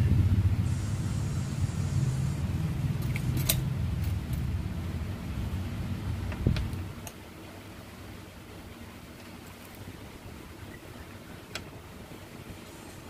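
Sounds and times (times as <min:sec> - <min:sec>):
low rumble: 0:00.0 - 0:06.9.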